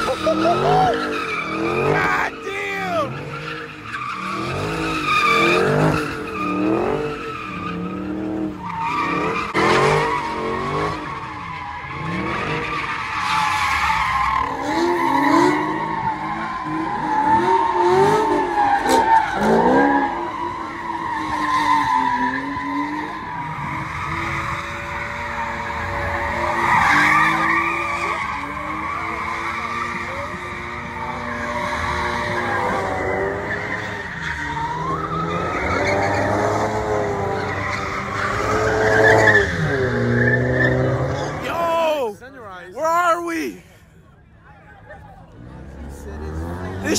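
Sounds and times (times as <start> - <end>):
car engine revving: 0.0 - 2.4, 3.0 - 13.0, 45.3 - 46.9.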